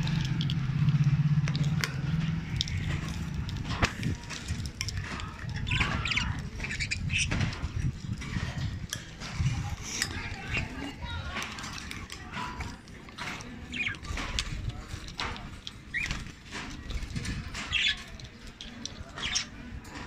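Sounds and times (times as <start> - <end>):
budgerigars chirping and squawking: 4.9 - 11.0, 13.2 - 20.0.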